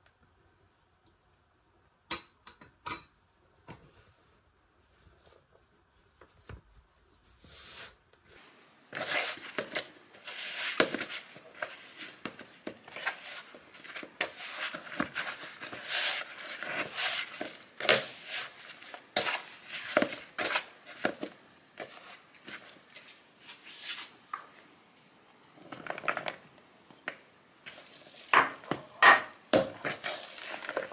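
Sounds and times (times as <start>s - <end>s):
hands rubbing plastic bowl: 7.2s - 24.5s
dough pressing and slapping: 8.9s - 24.4s.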